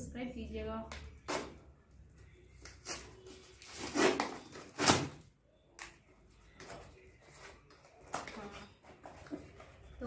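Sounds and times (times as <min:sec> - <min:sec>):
cardboard box ripping: 0:03.6 - 0:05.2.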